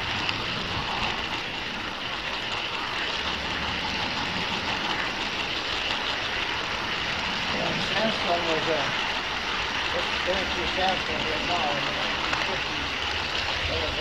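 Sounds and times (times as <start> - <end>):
model train rolling on track: 0.0 - 14.0.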